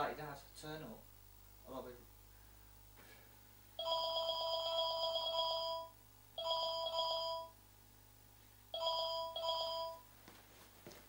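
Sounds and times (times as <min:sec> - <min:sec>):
telephone ringing: 0:03.8 - 0:07.6, 0:08.8 - 0:10.1.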